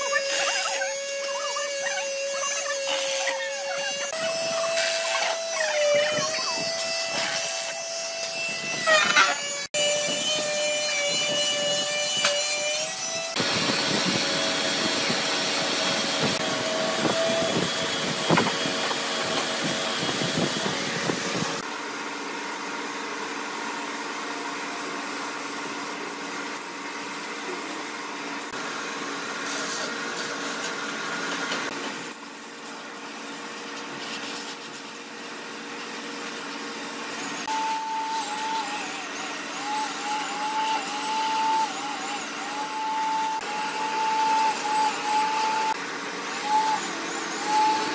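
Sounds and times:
power tool whining: 0.0 - 21.7, 36.4 - 47.9.

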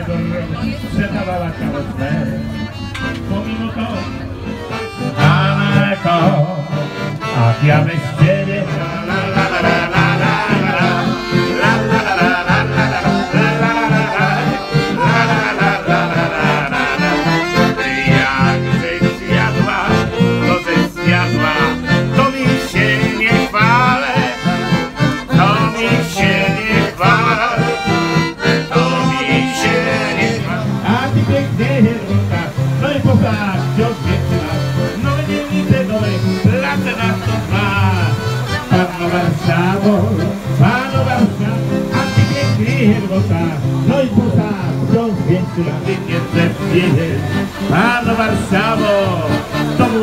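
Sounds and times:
accordion: 0.0 - 50.0
acoustic guitar: 0.0 - 50.0
people singing along: 7.3 - 34.4, 44.9 - 50.0.

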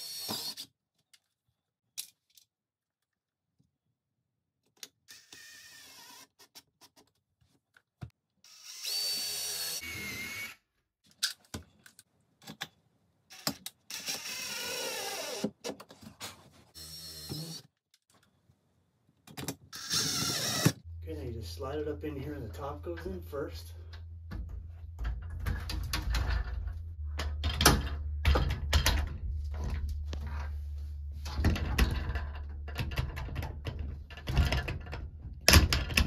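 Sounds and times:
cordless drill whining: 5.1 - 6.3, 8.5 - 10.6, 13.3 - 15.5, 16.8 - 17.7, 19.8 - 20.8.

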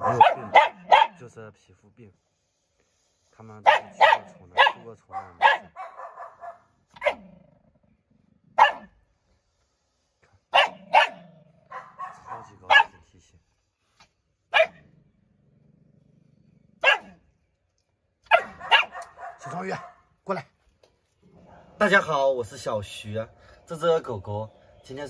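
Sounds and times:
dog barking sharply: 0.0 - 1.2, 3.6 - 7.2, 8.6 - 9.0, 10.5 - 13.0, 14.5 - 14.8, 16.8 - 17.2, 18.2 - 20.1.

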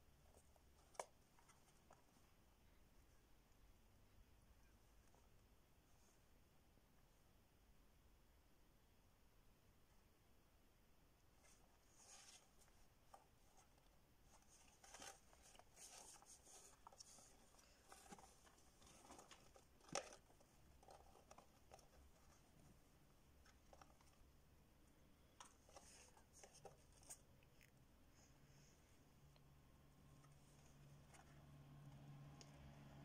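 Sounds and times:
rats rustling in bedding: 11.2 - 24.5.

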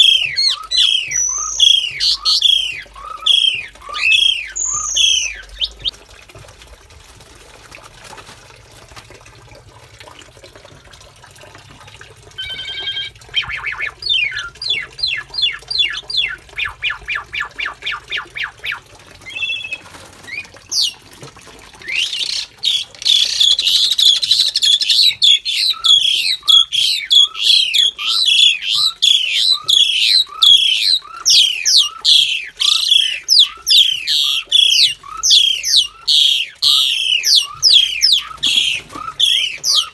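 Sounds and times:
harsh downward-sliding bird calls: 0.0 - 5.9, 21.9 - 39.9
quick repeated bird notes: 0.0 - 5.9.

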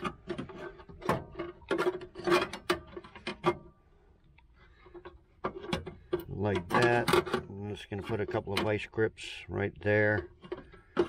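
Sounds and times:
sheet metal parts clanking: 0.0 - 3.8, 4.9 - 8.8.

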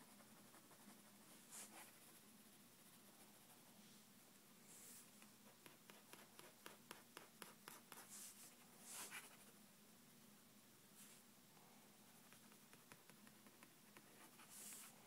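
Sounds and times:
pen scratching on paper: 5.4 - 8.3.

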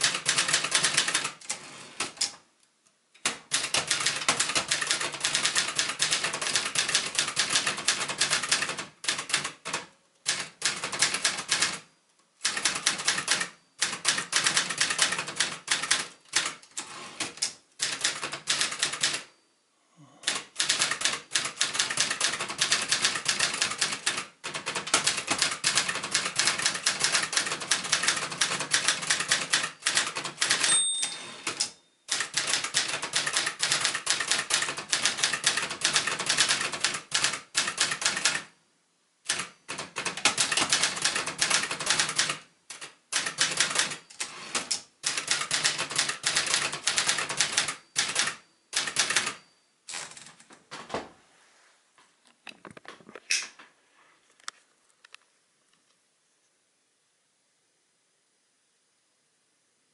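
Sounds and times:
typewriter keystroke clacks: 0.0 - 2.4, 3.2 - 11.8, 12.4 - 19.3, 20.2 - 30.8, 31.4 - 38.5, 39.3 - 50.5.

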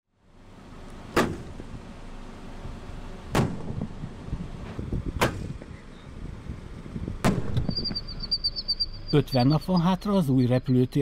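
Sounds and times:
gunshot-like bangs: 1.2 - 1.5, 3.3 - 3.9, 7.2 - 7.8
low rumble: 1.4 - 9.0.

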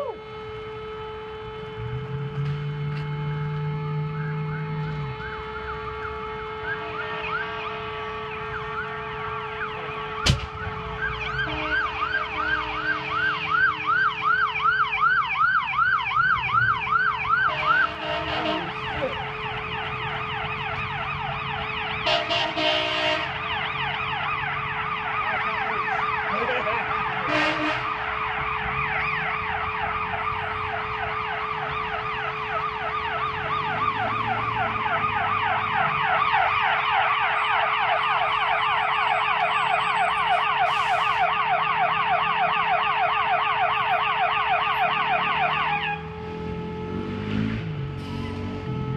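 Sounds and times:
emergency vehicle sirens: 0.0 - 48.9
short horn blasts: 0.1 - 13.5, 17.5 - 19.2, 22.0 - 23.4, 27.2 - 27.9
sharp bang: 10.2 - 10.8.

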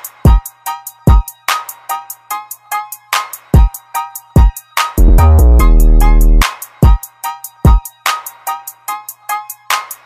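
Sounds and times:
deep kick drums: 5.0 - 6.4.

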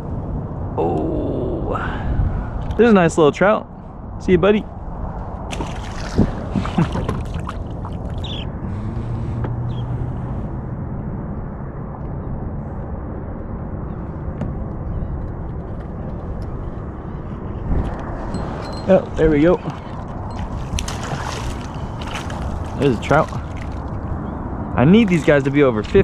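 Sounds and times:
wind and water rumble: 0.0 - 26.0
fish splashing into water: 5.5 - 8.3, 19.8 - 24.1.

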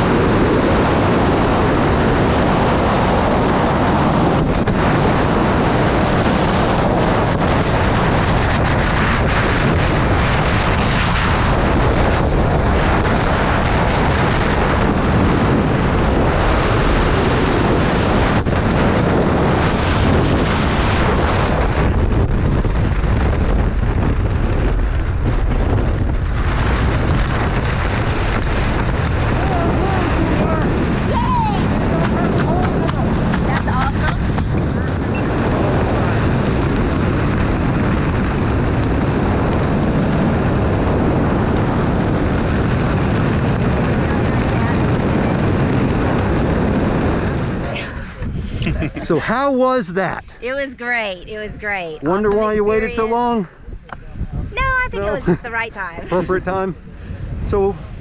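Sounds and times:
wind roaring on microphone: 0.0 - 58.0.

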